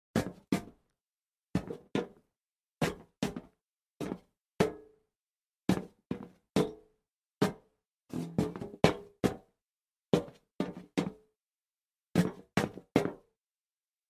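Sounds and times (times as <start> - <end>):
footsteps on metal plank: 7.4 - 9.5, 12.2 - 13.2.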